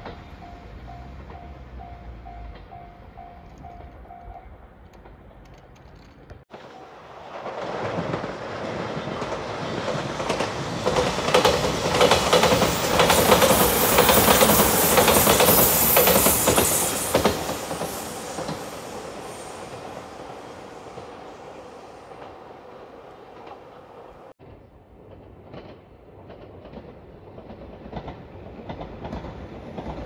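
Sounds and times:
electric train passing: 0.0s - 5.6s, 6.5s - 24.4s
wheels clicking over rail joints: 0.0s - 24.3s.

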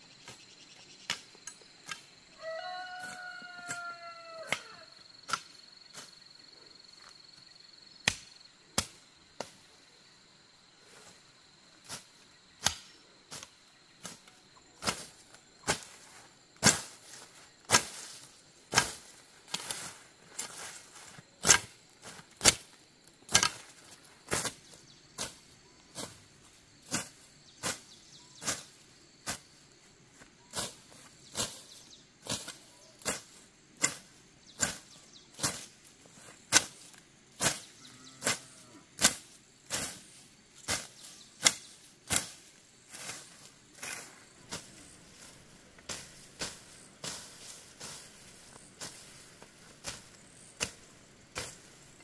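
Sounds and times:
insects trilling: 0.0s - 52.0s
machete chopping grass: 8.0s - 9.6s, 12.6s - 14.2s, 14.8s - 16.0s, 16.6s - 25.4s, 26.8s - 29.5s, 32.2s - 35.8s, 36.4s - 38.4s, 39.0s - 51.9s.

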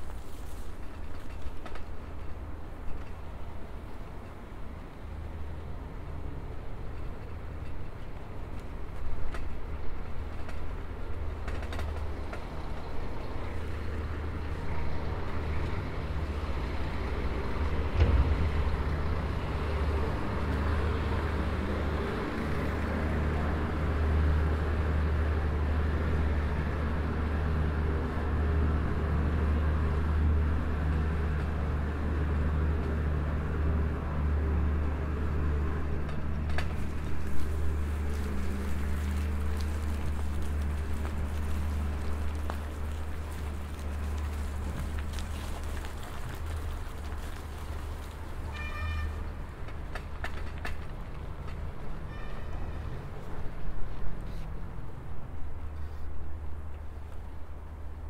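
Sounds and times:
low engine hum of traffic: 0.0s - 58.0s
sharp knock: 18.0s - 19.1s
tyres hissing on road: 36.3s - 49.5s.

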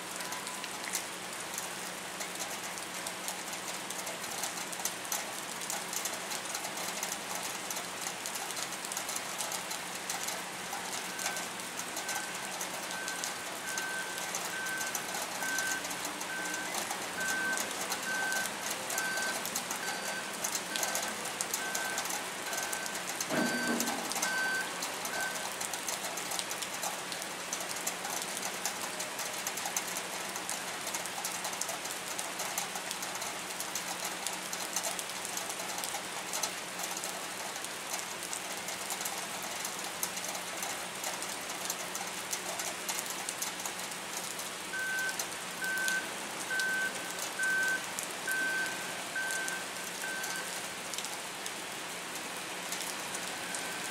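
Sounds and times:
steady rain falling: 0.0s - 53.9s
vehicle reversing beeper: 0.2s - 0.7s, 11.0s - 25.5s, 44.7s - 50.6s, 53.3s - 53.9s
thump: 23.3s - 24.0s.

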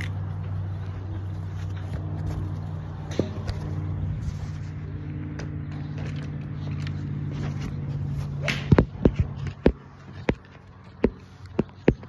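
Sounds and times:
engine hum: 0.0s - 12.0s
sharp knocks and cracks: 8.4s - 12.0s.

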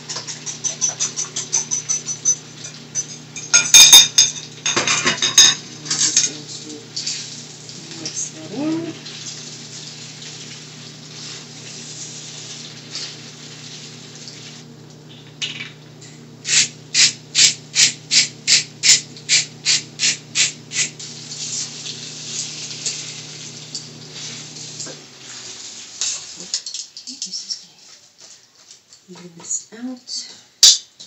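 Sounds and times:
pepper mill grinding: 0.0s - 4.8s, 16.5s - 21.7s
pasta sizzling in oil: 0.0s - 15.4s, 16.2s - 27.0s
cooktop hum: 0.0s - 31.0s.

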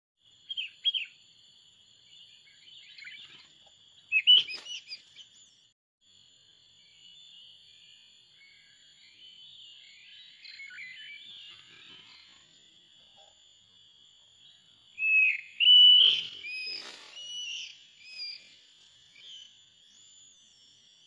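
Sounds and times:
bird chirping calls: 0.4s - 1.2s, 2.1s - 5.7s, 8.4s - 12.6s, 14.4s - 20.8s.

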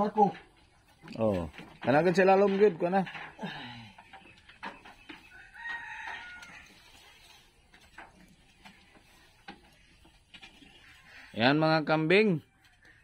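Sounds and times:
rooster crowing: 5.3s - 6.8s.

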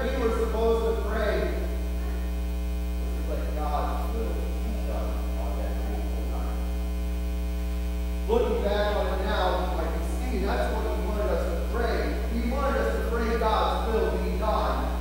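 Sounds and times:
electrical hum: 0.0s - 15.0s
man speaking faintly: 3.0s - 6.7s.

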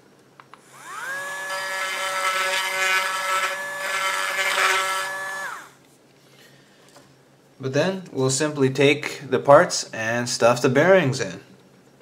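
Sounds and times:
rotary tool grinding plastic: 0.8s - 5.8s.

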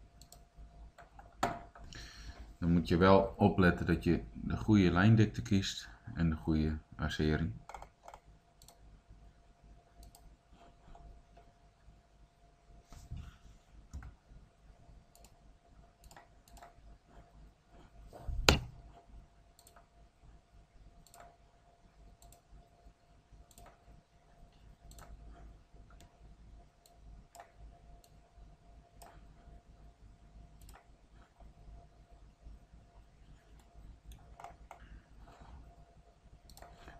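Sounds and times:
faint steady hum: 0.0s - 36.9s
computer mouse clicking: 0.2s - 2.0s, 7.6s - 8.8s, 10.0s - 11.5s, 15.1s - 15.4s, 16.0s - 19.9s, 21.0s - 21.4s, 22.2s - 22.5s, 23.4s - 23.8s, 24.4s - 26.2s, 26.8s - 28.2s, 29.0s - 29.4s, 30.6s - 31.6s, 33.4s - 35.5s, 36.4s - 36.9s.

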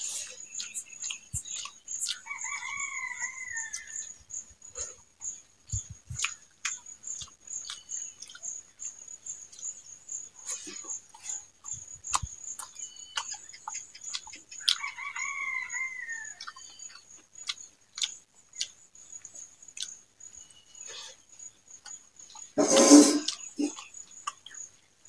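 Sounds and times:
high insect trill: 0.0s - 25.0s
chewing and finger smacks: 0.2s - 2.2s, 6.1s - 8.4s, 10.7s - 14.8s, 23.2s - 24.6s
rooster crowing: 2.2s - 4.1s, 14.6s - 16.5s.

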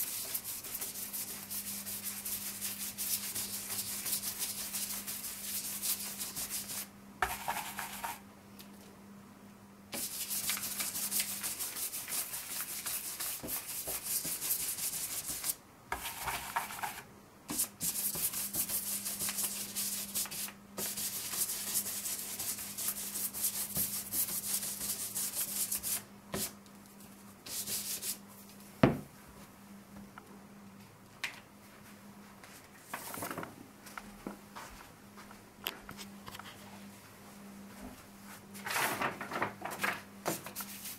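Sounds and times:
stencil brush scratching paper: 0.0s - 8.2s, 10.0s - 26.5s.

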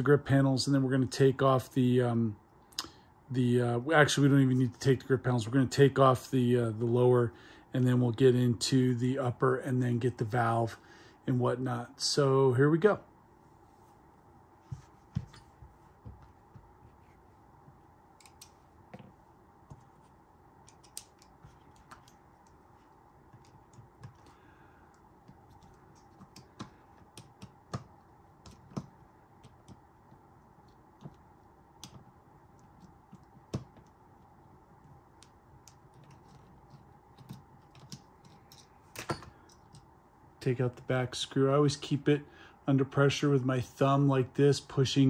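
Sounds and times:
screwdriver and metal parts clicking: 37.2s - 39.8s.

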